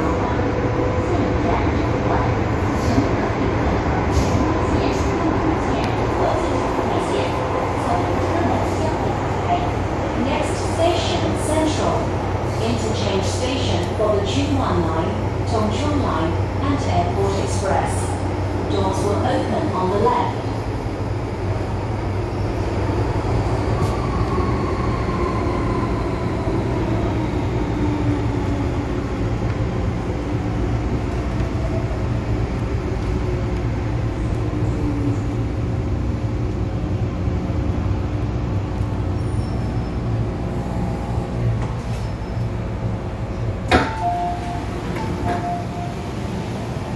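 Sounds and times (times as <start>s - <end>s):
train rumble: 0.0s - 46.9s.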